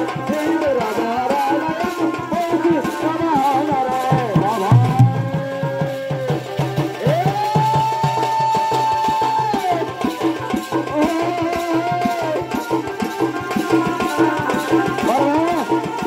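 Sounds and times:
drums beating fast rhythm: 0:00.0 - 0:16.0
reed pipe melody: 0:04.5 - 0:06.7.

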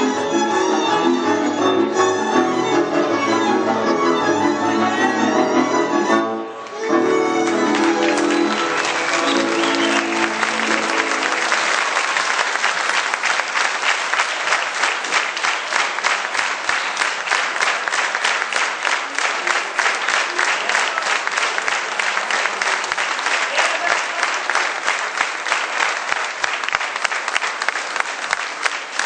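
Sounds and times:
fiddle: 0:00.0 - 0:11.7
audience applause: 0:06.6 - 0:29.0
rhythmic clapping in unison: 0:07.4 - 0:29.0.

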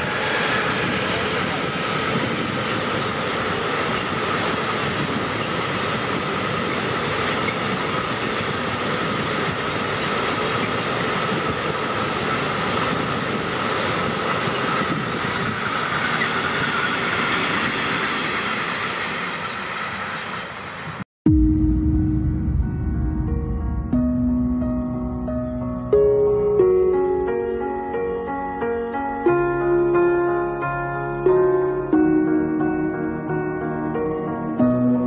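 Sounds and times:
train wheels rumbling on rail: 0:00.0 - 0:21.0.

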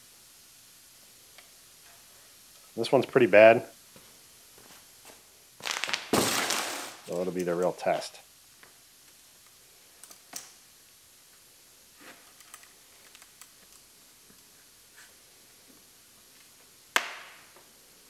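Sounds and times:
sharp crack: 0:05.6 - 0:07.5, 0:16.9 - 0:17.5.

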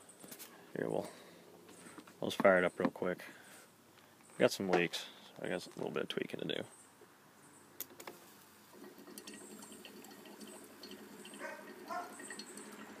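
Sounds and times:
faint bubbling and fizzing: 0:07.9 - 0:13.0.

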